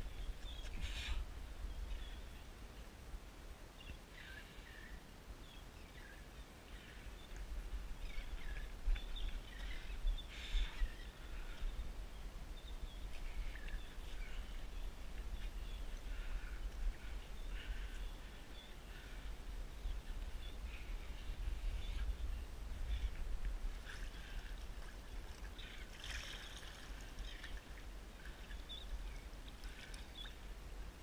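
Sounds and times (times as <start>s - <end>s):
wind buffeting microphone: 7.5s - 25.3s.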